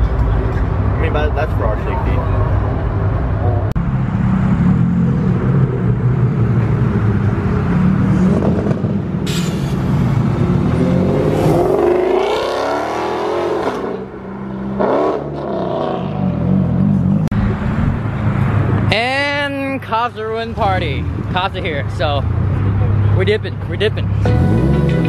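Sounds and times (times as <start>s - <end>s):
car engines rumbling: 0.0s - 25.0s
car engine revving and accelerating: 2.3s - 9.2s, 9.8s - 17.6s, 24.2s - 25.0s.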